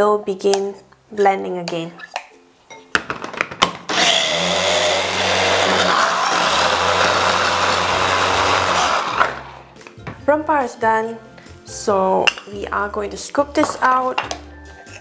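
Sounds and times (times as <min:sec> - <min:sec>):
electric chopper blending: 0:03.9 - 0:09.7.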